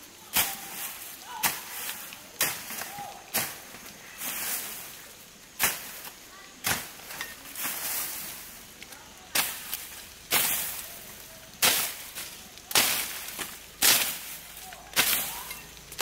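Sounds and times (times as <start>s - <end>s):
machete slashing undergrowth: 9.3s - 11.0s, 11.6s - 16.0s.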